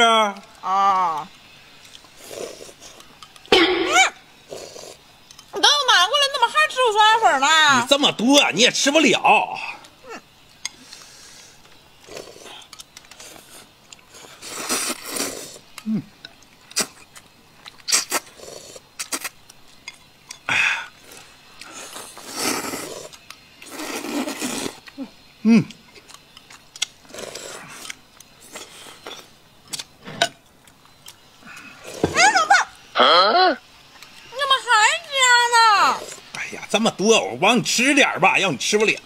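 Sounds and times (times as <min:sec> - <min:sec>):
people slurping noodles: 0:02.1 - 0:05.0, 0:10.7 - 0:17.3, 0:17.9 - 0:19.4, 0:20.5 - 0:26.1, 0:27.0 - 0:29.3, 0:31.4 - 0:32.3, 0:35.8 - 0:36.3.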